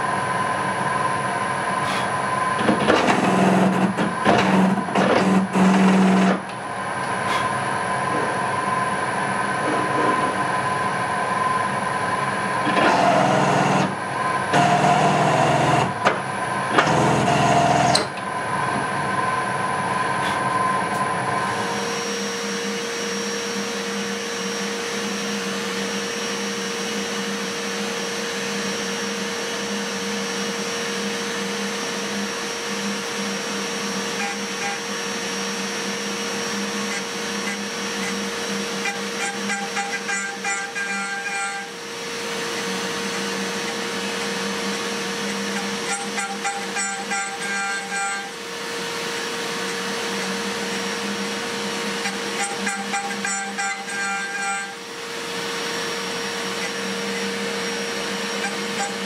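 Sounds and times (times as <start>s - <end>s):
milling spindle cutting hum: 0.9s - 59.0s
drill press cutting steel: 1.8s - 6.6s, 12.6s - 18.4s, 21.4s - 59.0s.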